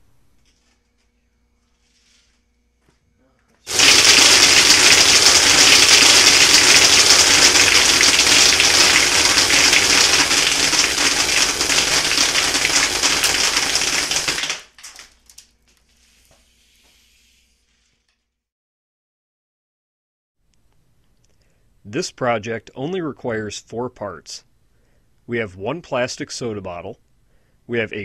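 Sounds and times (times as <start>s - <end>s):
compressed air blast: 3.7s - 14.6s.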